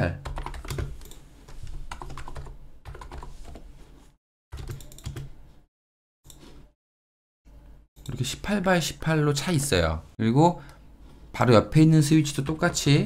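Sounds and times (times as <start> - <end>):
computer keyboard typing: 0.2 - 3.6, 4.6 - 5.3.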